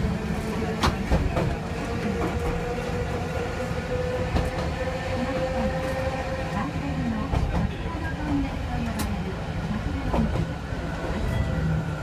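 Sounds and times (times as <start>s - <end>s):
tram rumble: 0.0s - 12.0s.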